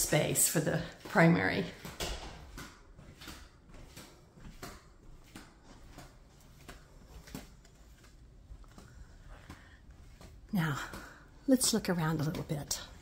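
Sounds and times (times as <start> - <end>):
soft footsteps: 0.0 - 13.0.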